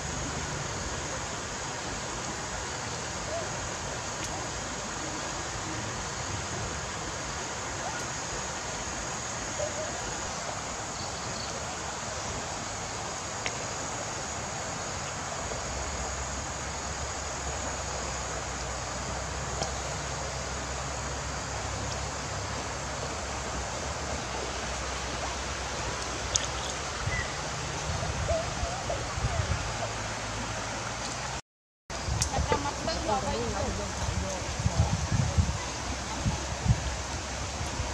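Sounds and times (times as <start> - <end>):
steady rushing hiss: 0.0 - 37.9
faint light clicks: 26.0 - 26.8.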